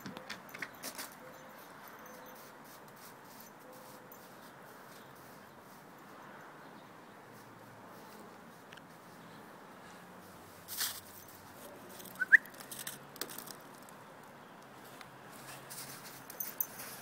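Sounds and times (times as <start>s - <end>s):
crunching rustle in snow: 10.6s - 12.0s, 15.3s - 16.2s.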